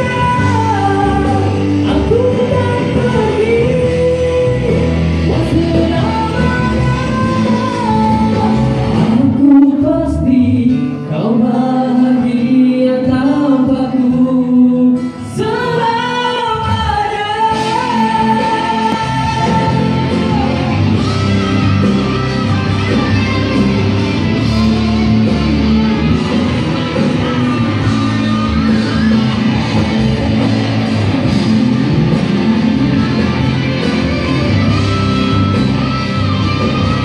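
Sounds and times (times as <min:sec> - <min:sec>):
men singing pop ballad: 0:00.0 - 0:22.0
backing music: 0:00.0 - 0:37.0.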